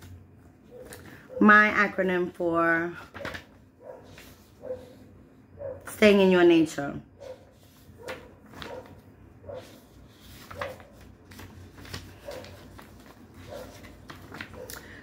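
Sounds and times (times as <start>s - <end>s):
paper pages rustling: 3.0s - 5.0s, 7.5s - 14.9s.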